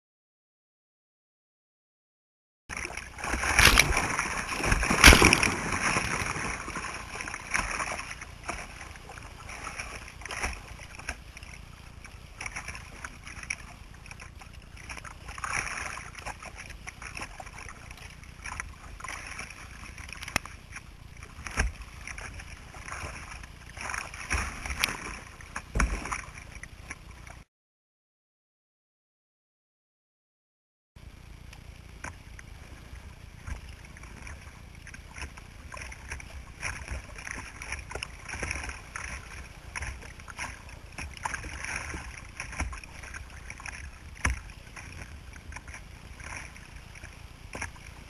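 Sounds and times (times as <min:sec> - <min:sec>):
river water rushing: 0:02.7 - 0:11.1
paddle strokes splashing: 0:02.7 - 0:27.5, 0:31.3 - 0:48.0.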